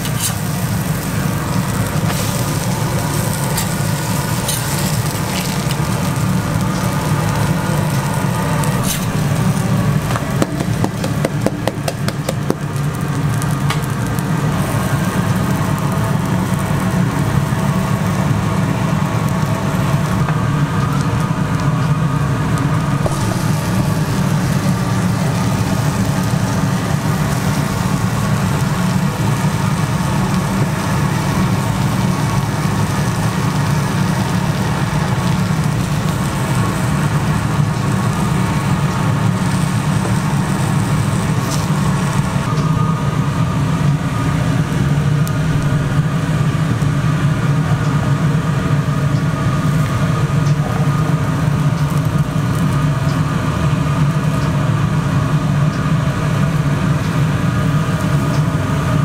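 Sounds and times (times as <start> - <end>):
clicks or scrapes: 0.0 - 0.5
low machine hum: 0.0 - 59.0
pancakes sizzling on griddle: 0.0 - 59.0.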